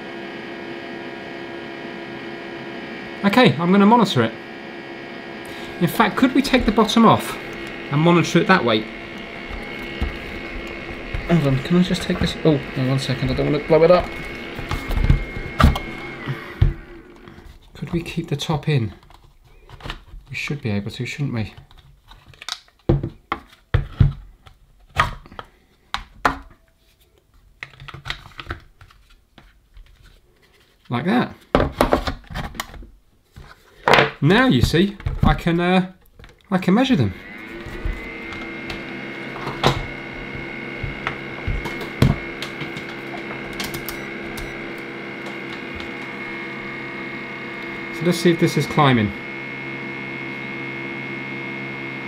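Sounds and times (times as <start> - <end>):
battery charger humming: 0.0 - 20.6, 36.8 - 52.0.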